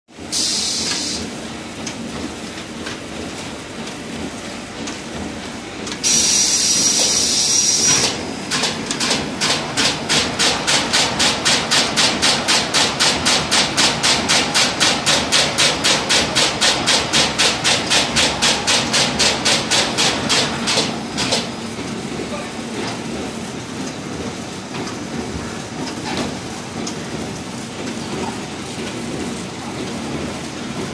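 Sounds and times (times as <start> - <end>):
machine hissing with whistle: 0.3 - 1.2, 6.0 - 8.1
machine clacking regularly: 0.8 - 30.9.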